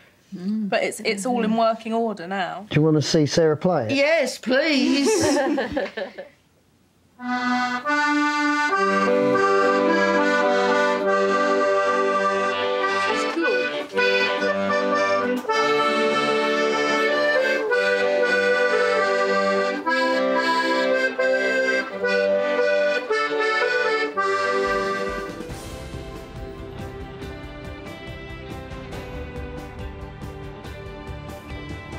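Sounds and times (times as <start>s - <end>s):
accordion playing a tune: 7.2s - 31.9s.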